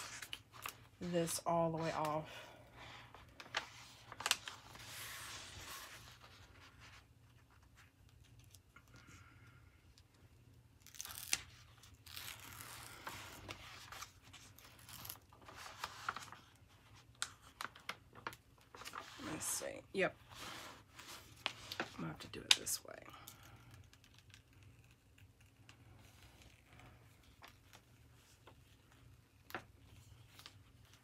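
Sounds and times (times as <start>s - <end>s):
film peeling off adhesive: 10.8s - 16.4s.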